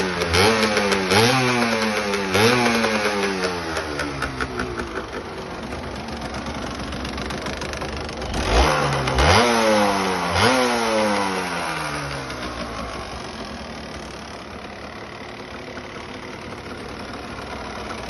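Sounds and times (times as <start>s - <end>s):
motorcycle engine running and revving: 0.0s - 18.0s.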